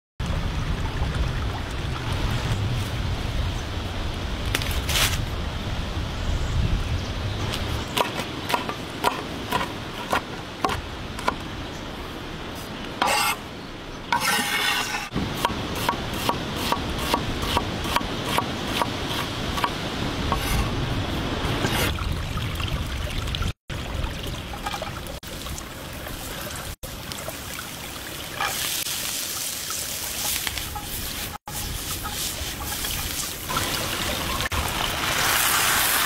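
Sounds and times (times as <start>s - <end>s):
oil sizzling in a frying pan: 28.4s - 36.0s.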